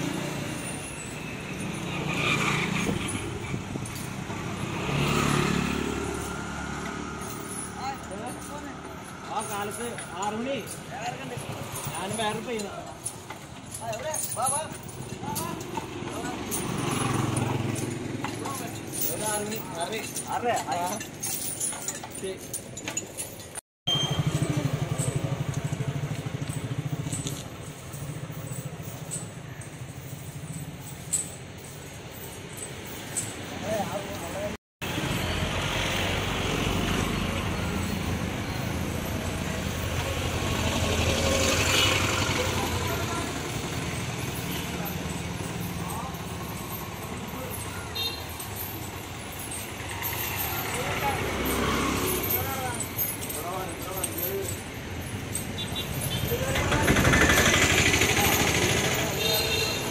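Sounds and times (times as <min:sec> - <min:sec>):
street traffic engines: 0:00.0 - 0:59.9
motorcycle engine passing close: 0:01.6 - 0:07.5, 0:15.9 - 0:18.8, 0:23.9 - 0:29.6, 0:38.9 - 0:47.9, 0:49.8 - 0:52.8, 0:56.1 - 0:59.9
motorcycle engine running: 0:23.9 - 0:28.6, 0:56.5 - 0:59.7.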